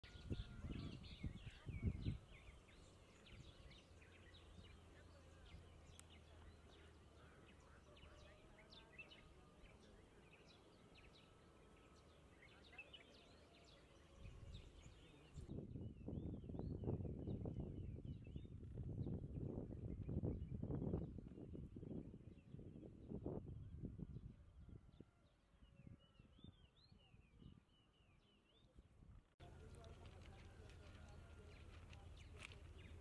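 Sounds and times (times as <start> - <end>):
birds chirping: 0.0 - 21.0, 29.4 - 33.0.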